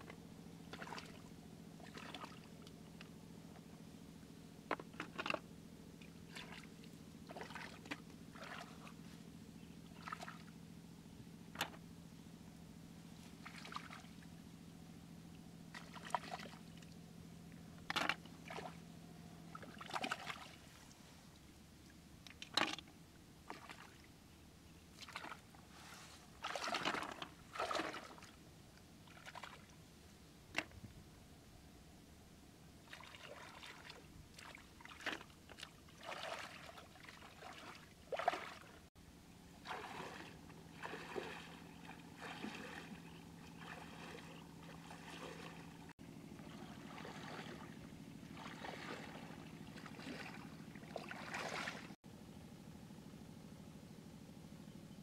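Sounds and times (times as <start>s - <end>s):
hands splashing in muddy water: 19.6s - 20.6s, 26.4s - 28.3s, 32.9s - 38.8s, 39.6s - 45.6s, 48.4s - 52.0s.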